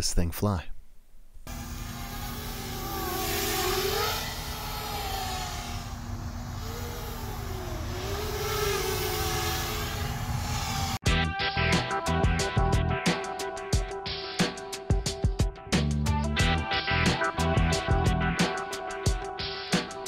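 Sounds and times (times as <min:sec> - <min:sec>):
quadcopter motors buzzing: 0:01.5 - 0:11.0
music: 0:11.0 - 0:20.0.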